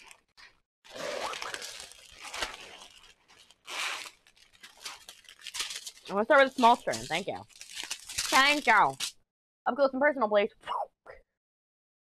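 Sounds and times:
plastic bags crinkling: 0:00.0 - 0:09.1.

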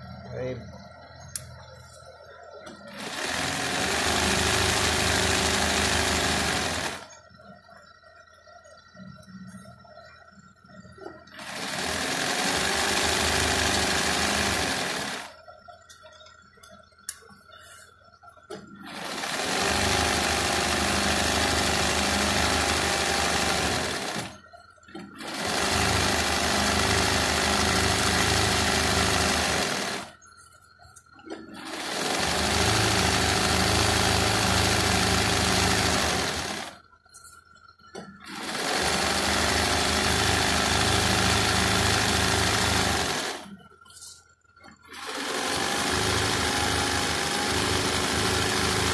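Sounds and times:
sewing machine running: 0:02.9 - 0:07.2, 0:11.3 - 0:15.4, 0:18.8 - 0:24.4, 0:25.1 - 0:30.2, 0:31.5 - 0:36.8, 0:38.2 - 0:43.6, 0:44.8 - 0:48.9.

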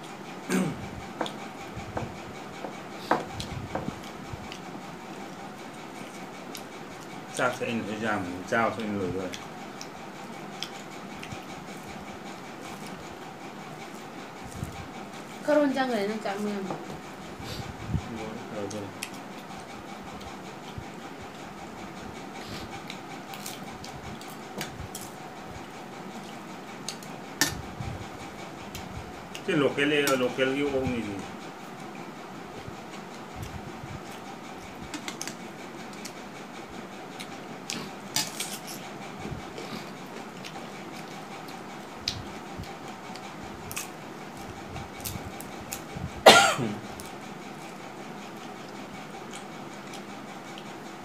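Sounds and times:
quiet eating by hand: 0:00.0 - 0:51.0
room hum: 0:00.0 - 0:51.0
cough-like vocal sound: 0:00.5 - 0:00.8, 0:46.2 - 0:46.8
soft chewing and mouth clicks: 0:39.5 - 0:45.8.

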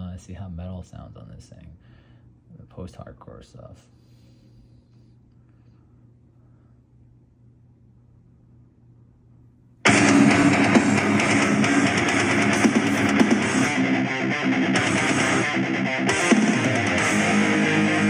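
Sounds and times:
faint low hum: 0:00.0 - 0:10.3
metal music with guitar and drums: 0:09.8 - 0:18.0.

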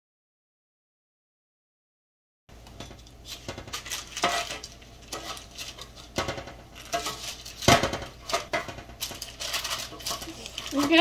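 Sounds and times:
metal tongs clinking on sheet pan: 0:02.8 - 0:11.0.

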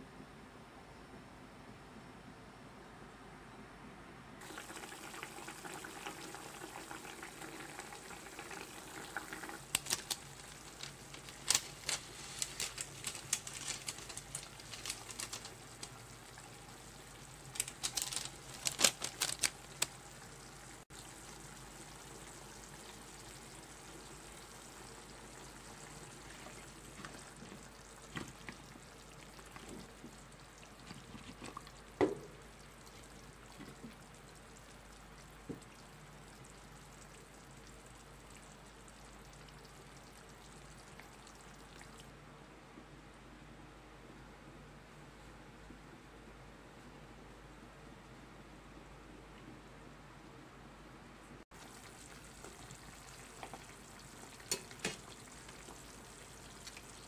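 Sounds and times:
liquid bubbling in a pan: 0:04.4 - 0:42.1, 0:51.4 - 0:57.0
sharp clicks and pops: 0:09.6 - 0:16.0.

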